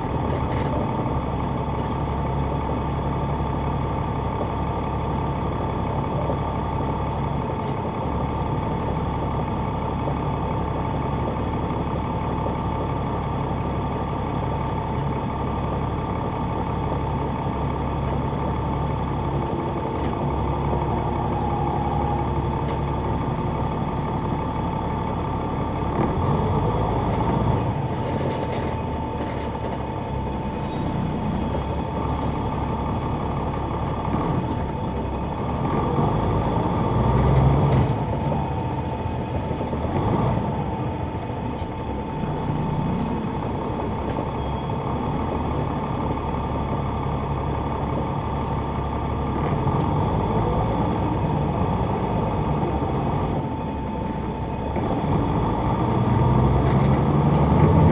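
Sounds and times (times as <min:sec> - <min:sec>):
bus diesel engine running: 0:00.0 - 0:57.9
brief high squeaks: 0:29.8 - 0:32.1, 0:41.2 - 0:42.9, 0:44.2 - 0:45.6.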